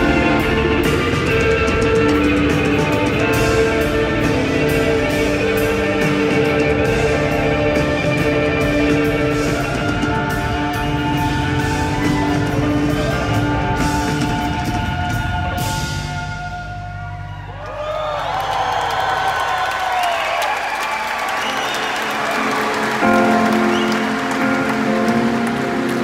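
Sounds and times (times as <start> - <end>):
electric guitar lead notes: 0.0 - 17.0, 22.3 - 26.0
bass guitar: 0.0 - 19.6, 22.3 - 26.0
drums: 0.0 - 26.0.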